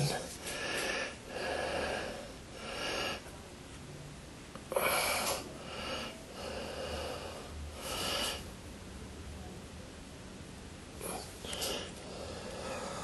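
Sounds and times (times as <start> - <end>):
person breathing: 0.4 - 3.3, 4.7 - 8.5, 11.0 - 13.0.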